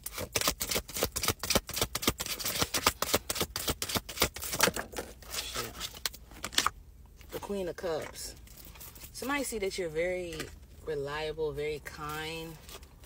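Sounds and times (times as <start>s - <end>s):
cards being shuffled: 0.1s - 6.7s.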